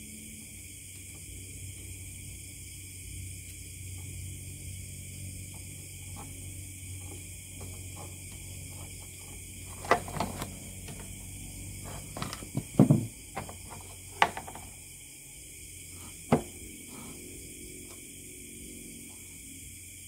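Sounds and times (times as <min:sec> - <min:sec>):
hand tools set down on wood: 0:11.8 - 0:14.8, 0:16.3 - 0:16.6.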